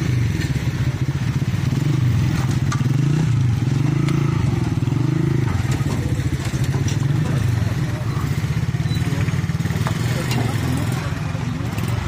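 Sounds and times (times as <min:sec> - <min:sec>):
small motorcycle engine idling: 0:00.0 - 0:12.0.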